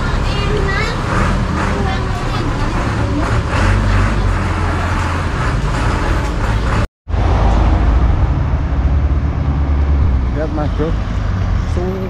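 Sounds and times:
minibus engine running: 0.0 - 12.0
street traffic: 0.0 - 12.0.

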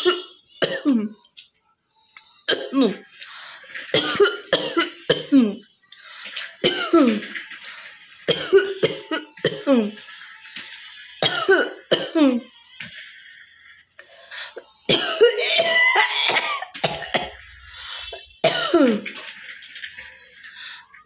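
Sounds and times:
woman coughing: 0.0 - 1.2, 3.9 - 5.6, 8.3 - 10.0, 11.2 - 12.5, 14.9 - 17.4, 18.1 - 19.1.

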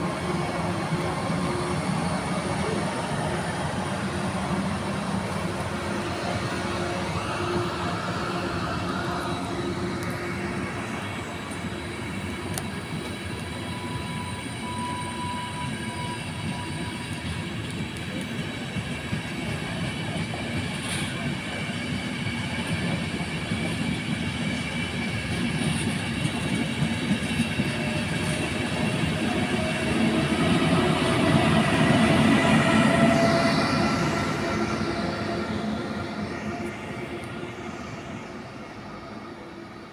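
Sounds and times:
locomotive passing: 0.0 - 39.9
train wheels rumbling: 0.0 - 39.9
high wheel squeal: 10.4 - 17.6.

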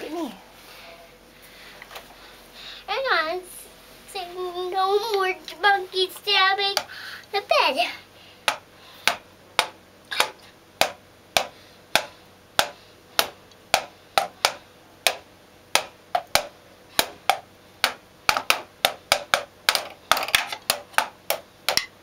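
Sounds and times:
drumsticks tapping rubber pads: 8.4 - 22.0.

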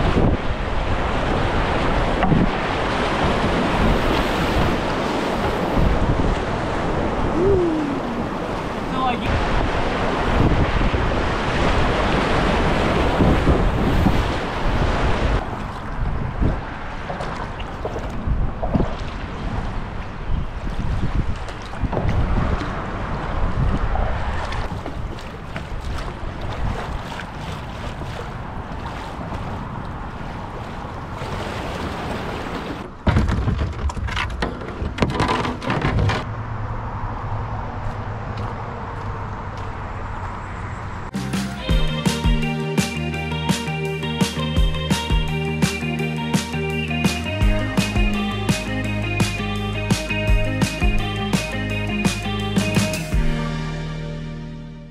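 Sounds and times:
paddle splashes: 0.0 - 7.4, 8.0 - 33.4
rushing whitewater: 0.0 - 16.0
river water flowing: 0.0 - 32.9
wind buffeting microphone: 0.0 - 32.9
kayak knocking and scraping bank: 2.0 - 6.6, 15.4 - 19.6, 20.6 - 29.6, 31.2 - 36.3.

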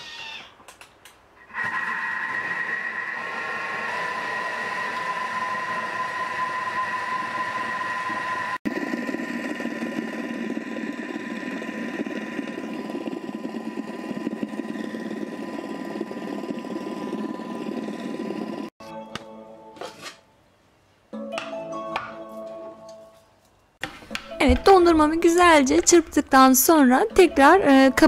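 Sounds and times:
food processor motor whining: 1.5 - 18.8.

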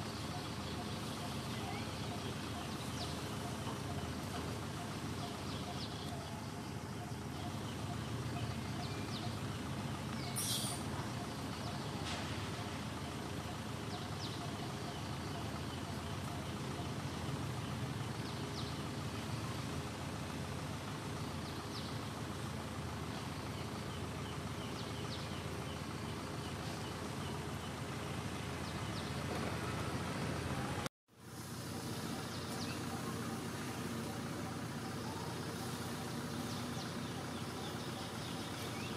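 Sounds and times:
brief sharp hiss: 10.4 - 10.8.

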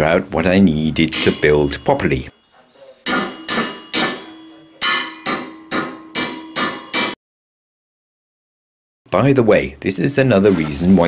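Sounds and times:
hammer blows on steel: 1.0 - 2.4, 3.0 - 7.2.

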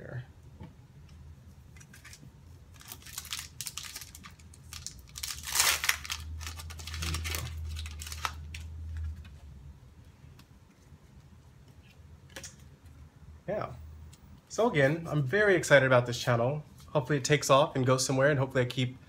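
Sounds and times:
foil wrapper tearing: 1.8 - 8.7
foil wrapper crinkling: 1.8 - 9.2.

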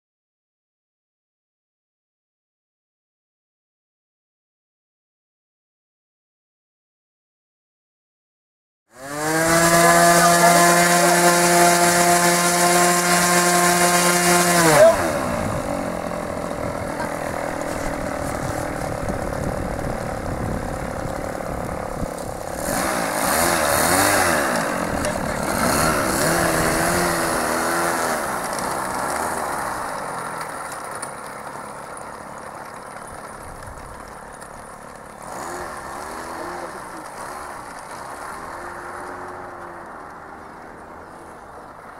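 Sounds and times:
model airplane engine revving: 8.9 - 41.7.

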